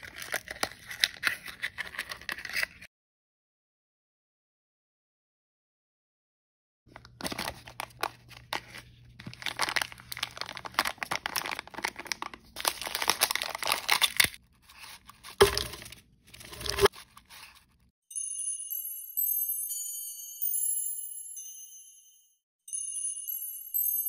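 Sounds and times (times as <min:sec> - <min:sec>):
plastic wrapper crinkling and tearing: 0:00.0 - 0:02.9, 0:06.9 - 0:17.6.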